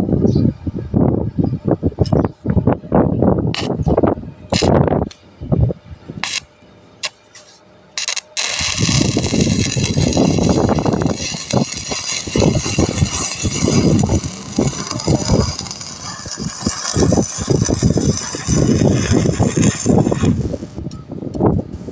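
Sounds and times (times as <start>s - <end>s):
welding arc crackling: 3.5s - 3.8s, 4.5s - 5.2s, 6.2s - 20.9s.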